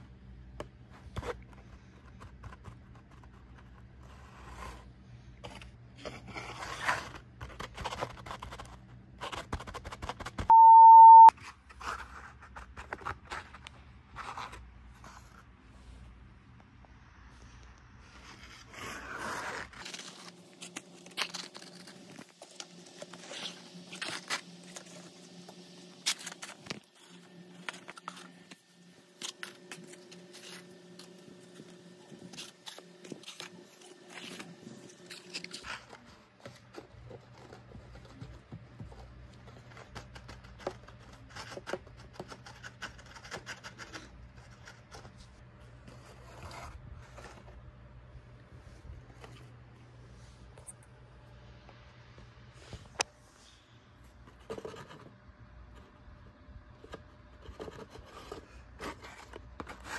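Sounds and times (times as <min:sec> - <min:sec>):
paper and cardboard rustling: 0:00.8 - 0:10.5, 0:18.0 - 0:47.7, 0:56.8 - 0:59.9.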